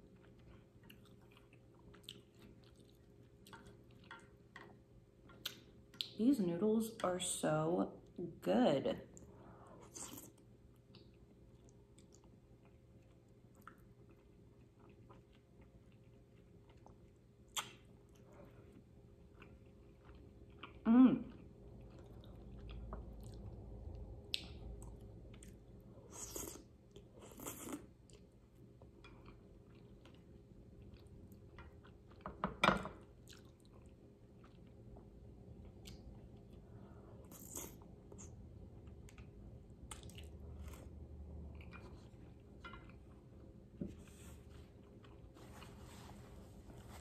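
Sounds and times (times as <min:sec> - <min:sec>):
chewing noodles: 0:00.0 - 0:06.2, 0:09.8 - 0:32.2, 0:33.1 - 0:43.2
small mouth clicks: 0:17.5 - 0:17.8.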